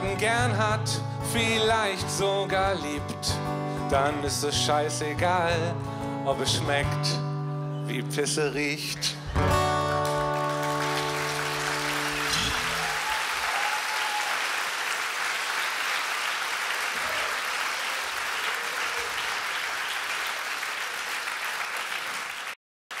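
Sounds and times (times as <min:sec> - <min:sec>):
audience applauding: 0:09.6 - 0:23.0.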